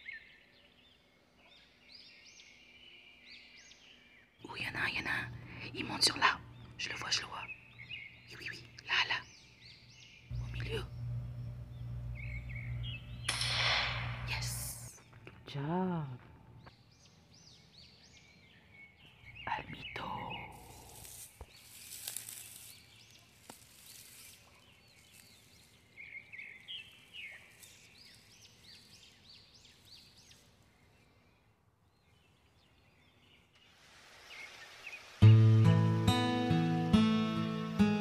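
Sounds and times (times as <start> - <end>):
faint birds chirping: 0.0 - 38.0
rustling: 20.6 - 25.9.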